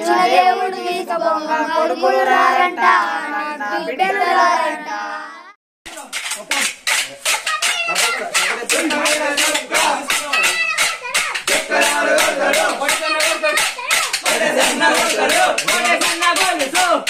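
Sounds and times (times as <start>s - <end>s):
voices singing: 0.0s - 6.1s, 7.1s - 17.0s
wooden sticks clacking: 5.9s - 17.0s.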